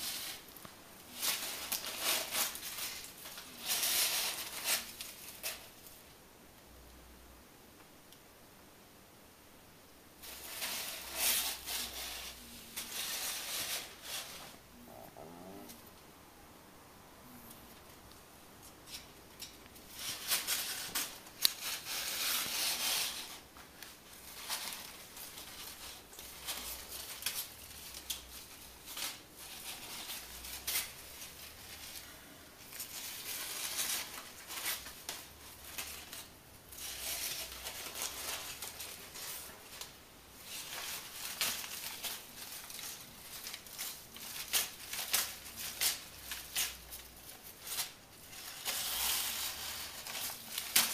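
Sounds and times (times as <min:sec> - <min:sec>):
paper crinkling and rustling: 0:00.0 - 0:06.0, 0:19.9 - 0:50.9.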